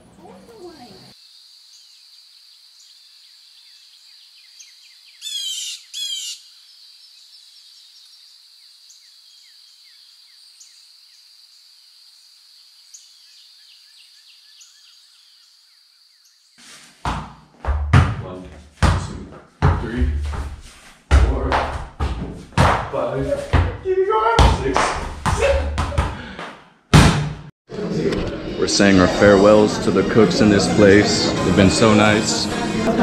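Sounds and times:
loud rapid chirping trills: 0.6 - 11.7.

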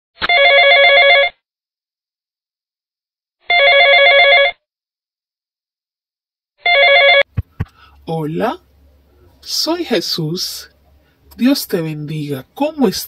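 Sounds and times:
telephone ringtone trilling: 0.3 - 1.4, 3.5 - 4.6, 6.6 - 7.3.

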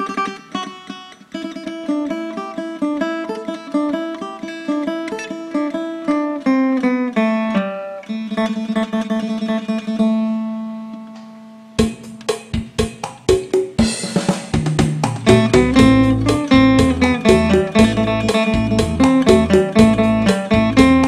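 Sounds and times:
plucked lute melody: 0.0 - 12.3, 15.2 - 21.0
sharp regular beats: 11.8 - 21.0
low bass notes: 15.0 - 21.0.

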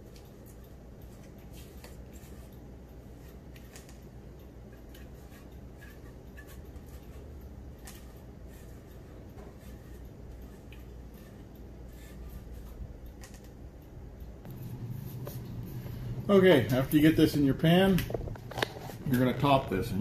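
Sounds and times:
steady low hum: 0.0 - 20.0
clicks and light taps: 17.7 - 19.8.

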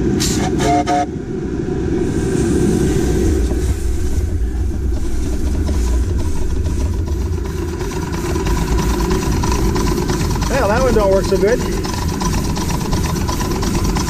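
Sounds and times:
steam locomotive wheels rumbling: 0.0 - 14.0.

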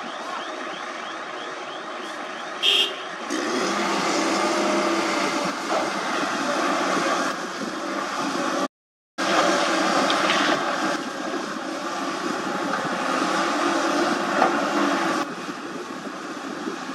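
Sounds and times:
excavator diesel engine working: 0.0 - 16.9.

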